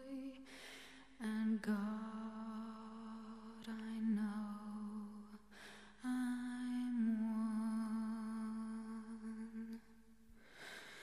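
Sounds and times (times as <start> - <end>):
short breath: 0.4 - 1.1, 10.4 - 11.0.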